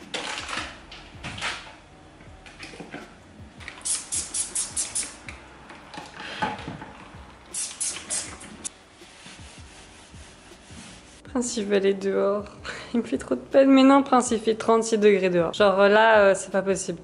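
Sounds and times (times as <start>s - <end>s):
handling and wiping noises: 2.3s - 12.0s
spray bottle hissing sprays: 3.6s - 5.4s, 6.0s - 11.2s.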